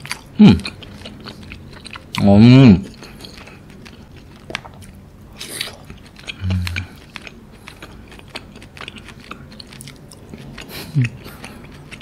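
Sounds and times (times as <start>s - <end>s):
chewing with wet mouth clicks: 0.0s - 12.0s
low closed-mouth hum: 0.0s - 12.0s
lip smacks: 3.0s - 12.0s.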